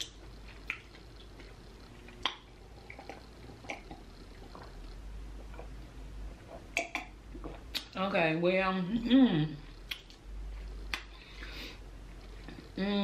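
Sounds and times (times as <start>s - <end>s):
wet mouth clicks: 2.1s - 4.8s, 6.8s - 8.0s, 9.8s - 11.2s.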